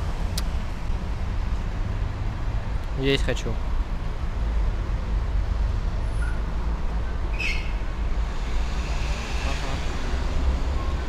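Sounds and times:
street traffic rumble: 0:00.0 - 0:11.0
short high squeak: 0:07.3 - 0:07.9.

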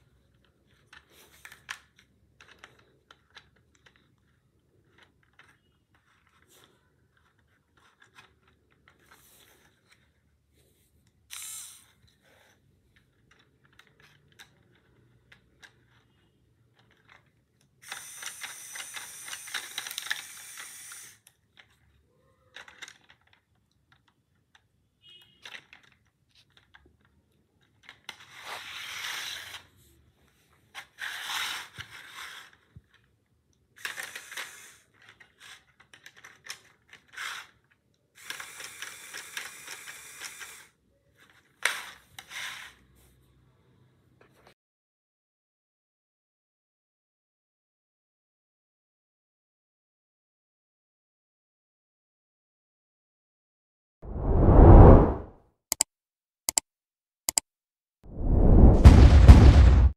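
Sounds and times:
plastic gears clattering: 0:00.1 - 0:09.8, 0:12.9 - 0:29.7, 0:30.7 - 0:42.8.

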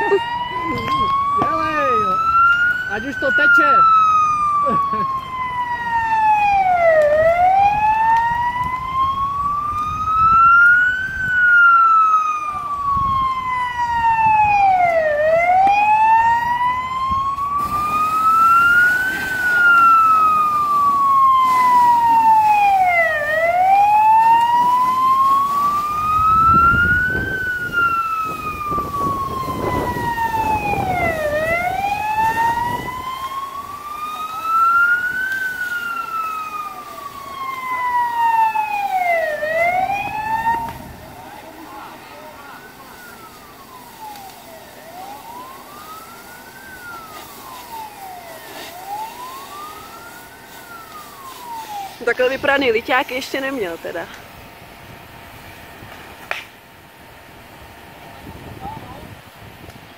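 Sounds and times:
fire engine siren wailing: 0:00.0 - 0:59.9.

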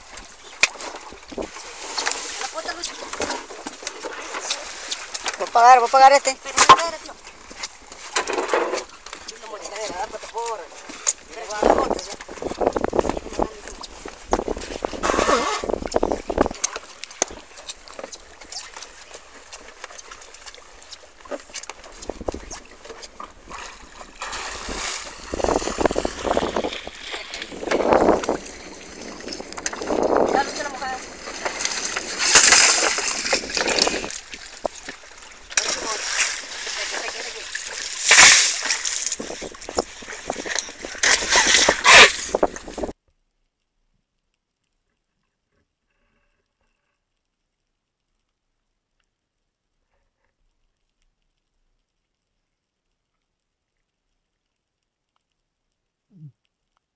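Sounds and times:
water splashing against boat: 0:00.0 - 0:43.0.

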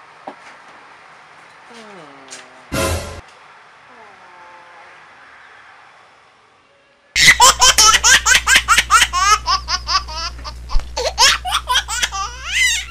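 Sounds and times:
high-pitched laughter: 0:07.2 - 0:12.9.

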